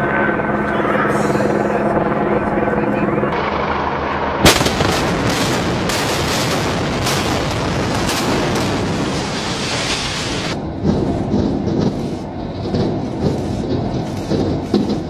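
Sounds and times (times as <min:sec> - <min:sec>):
building collapse rumble: 0:03.4 - 0:15.0
loud explosion bang: 0:04.4 - 0:12.0.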